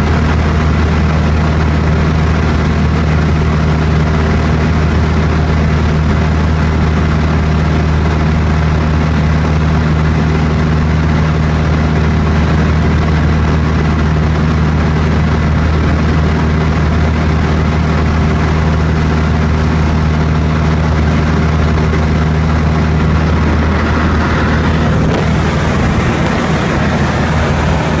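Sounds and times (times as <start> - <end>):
light aircraft engine droning: 0.0 - 28.0.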